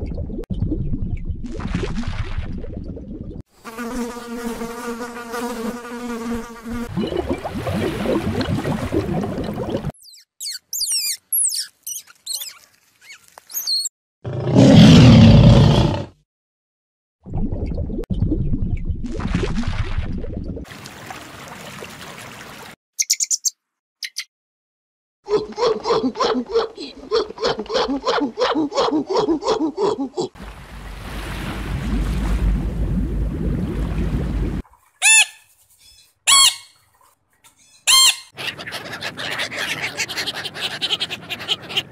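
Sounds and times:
water rushing and bubbling: 6.9s - 10.0s, 30.4s - 34.8s
squirrel squeaking calls: 10.0s - 13.9s, 23.0s - 24.3s, 35.0s - 36.8s, 37.6s - 41.9s.

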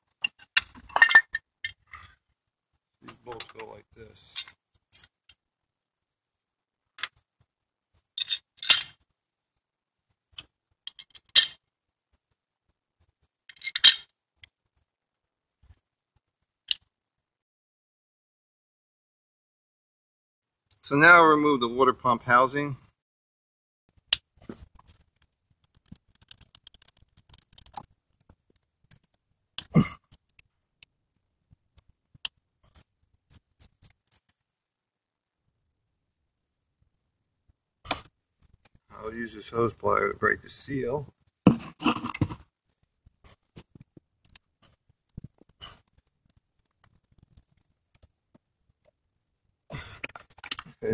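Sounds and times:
steel bolts clinking on metal: 0.2s - 2.0s, 4.3s - 5.1s, 8.2s - 9.0s, 10.9s - 11.6s, 13.5s - 14.1s
small clicks and scrapes: 10.1s - 12.4s, 23.9s - 34.5s, 37.9s - 38.9s, 41.2s - 49.0s, 50.0s - 50.8s.

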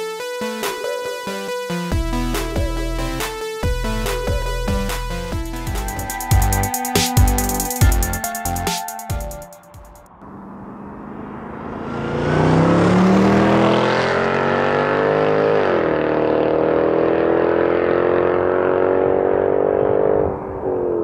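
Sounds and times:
car engine accelerating hard: 10.2s - 21.0s.

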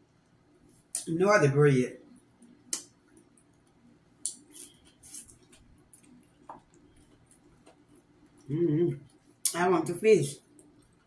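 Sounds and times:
crunchy chewing: 3.1s - 9.5s.

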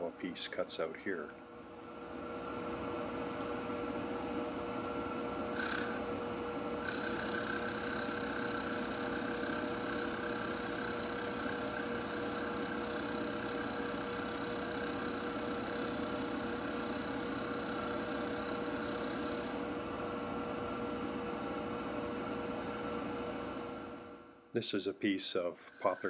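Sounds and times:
cutter turning wood: 5.5s - 6.1s, 6.8s - 19.7s, 25.7s - 26.0s
lathe whining: 5.5s - 6.2s, 6.8s - 19.8s.

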